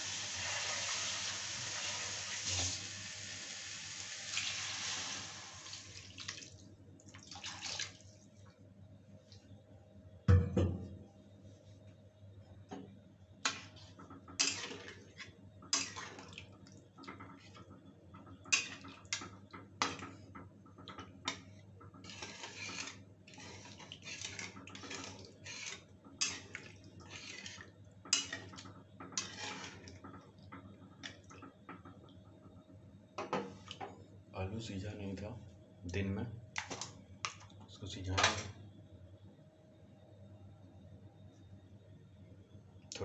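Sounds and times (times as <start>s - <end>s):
metal spatula scraping a metal pan: 14.4s - 15.0s, 15.7s - 16.2s, 18.5s - 18.9s, 22.0s - 30.0s.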